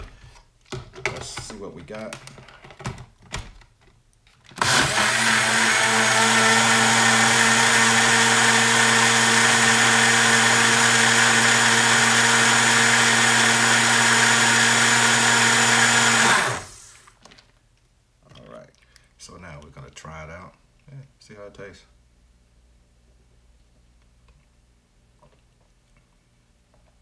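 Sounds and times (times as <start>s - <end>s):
electric mixer motor running: 4.6s - 17.1s.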